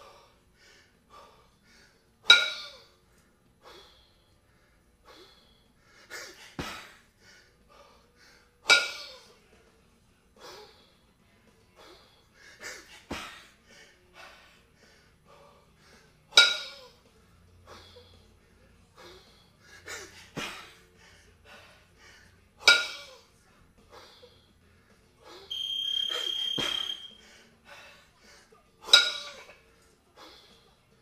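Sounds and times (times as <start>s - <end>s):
heavy breathing: 0.0s - 8.7s, 10.3s - 16.3s, 16.9s - 25.5s, 26.1s - 28.7s, 29.4s - 30.9s
kettlebells clanking: 2.2s - 2.9s, 8.6s - 9.2s, 16.3s - 16.9s, 22.6s - 23.2s, 25.5s - 27.2s, 28.8s - 29.6s.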